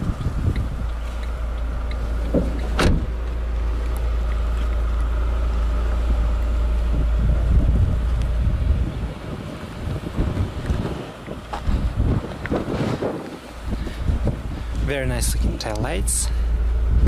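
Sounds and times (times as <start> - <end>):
car door shutting: 0.0 - 3.4
wind rumble on microphone: 0.0 - 17.0.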